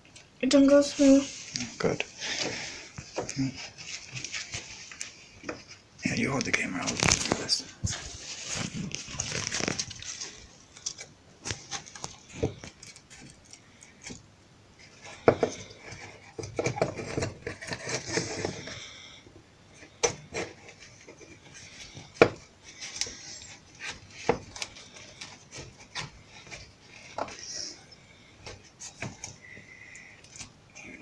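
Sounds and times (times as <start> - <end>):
rubbing and scraping: 6.6 - 13.4, 14.8 - 19.0.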